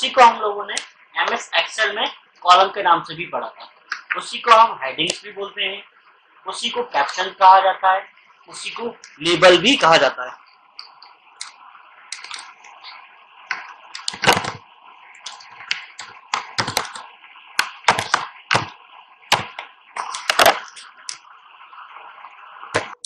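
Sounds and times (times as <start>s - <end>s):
steady background hiss: 0.0s - 23.0s
keyboard typing clicks: 15.3s - 17.0s.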